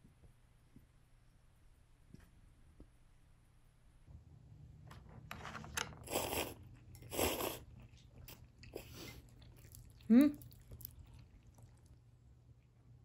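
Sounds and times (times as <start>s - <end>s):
noodles being slurped: 6.0s - 12.0s.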